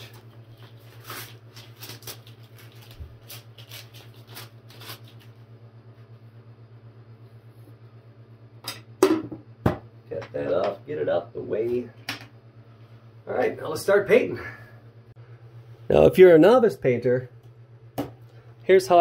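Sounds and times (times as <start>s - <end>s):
tape patting and ripping: 0.0s - 5.4s
steady low hum: 0.0s - 19.0s.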